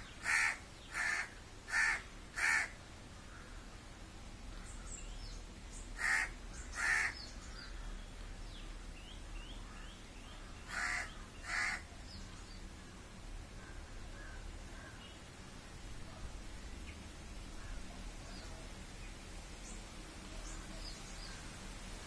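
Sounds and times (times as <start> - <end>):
small birds chirping: 0.0 - 3.8, 4.4 - 21.8
crow cawing: 0.2 - 3.6, 6.0 - 8.0, 10.4 - 11.9, 13.6 - 15.0.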